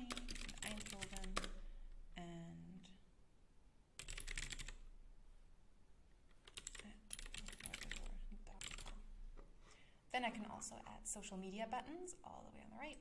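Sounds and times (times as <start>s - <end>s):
typing on computer keyboard: 0.0s - 1.6s, 4.0s - 4.8s, 6.3s - 9.0s.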